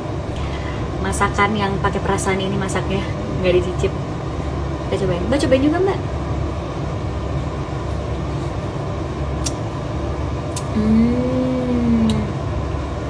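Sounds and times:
low background hum: 0.0s - 13.0s
woman humming mmm: 10.6s - 12.4s.

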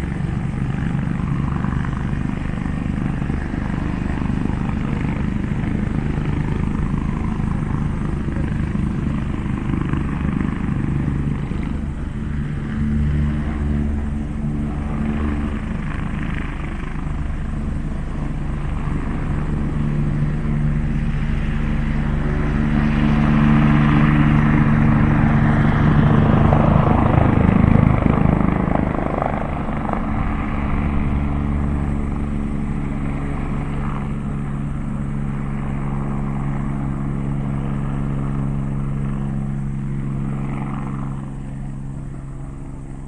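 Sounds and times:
helicopter rotors and engine: 0.0s - 43.0s.

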